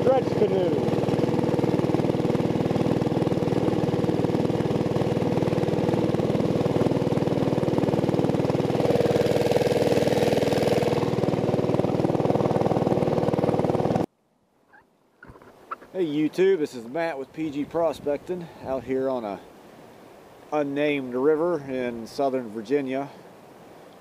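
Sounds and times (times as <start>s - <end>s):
small motor running: 0.0s - 14.1s
water rushing along hull: 0.0s - 14.1s.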